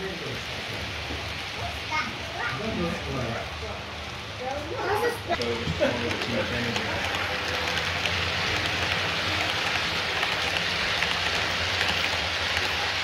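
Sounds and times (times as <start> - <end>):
model train wheels rattling on track: 5.4 - 13.0.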